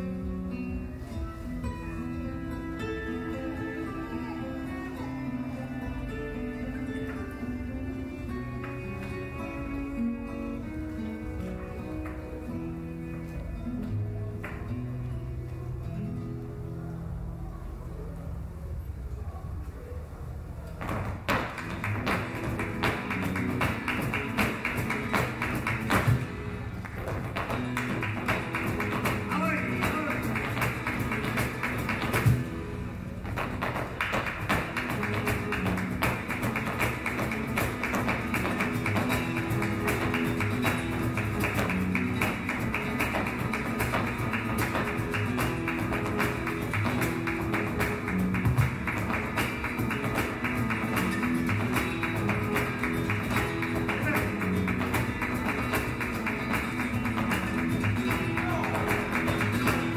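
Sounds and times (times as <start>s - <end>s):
cello: 0.0s - 16.9s
guitar: 0.0s - 59.9s
shoes stamping on stage floor: 20.8s - 32.6s, 33.2s - 59.9s.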